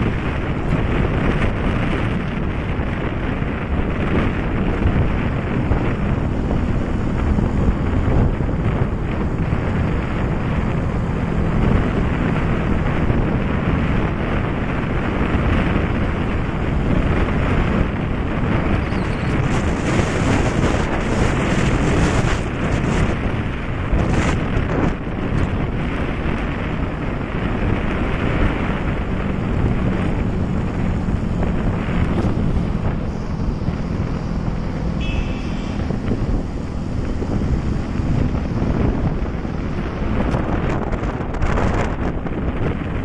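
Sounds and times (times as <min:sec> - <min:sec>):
low engine drone: 0:00.0 - 0:43.0
vehicle road and engine noise: 0:00.0 - 0:43.0
wind buffeting microphone: 0:00.0 - 0:43.0
brief high tone: 0:34.9 - 0:36.0.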